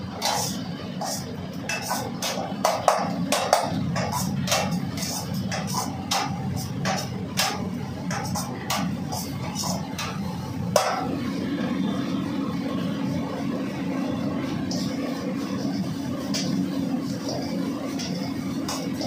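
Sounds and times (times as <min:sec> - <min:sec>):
kitchen burner roaring: 0:00.0 - 0:19.0
metal ladle clanking against wok: 0:00.2 - 0:10.2.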